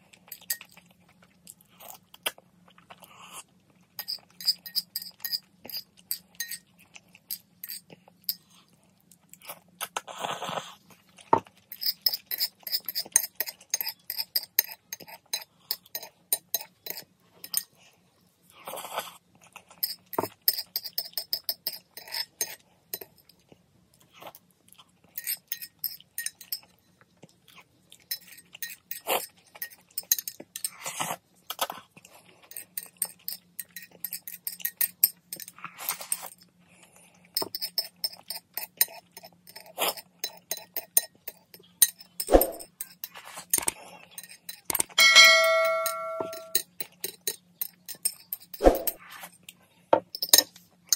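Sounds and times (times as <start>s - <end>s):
chopsticks clinking on bowl: 0.3s - 0.8s, 4.0s - 6.7s, 7.3s - 8.4s, 11.7s - 17.7s, 25.2s - 26.7s, 28.1s - 30.8s, 37.4s - 49.0s.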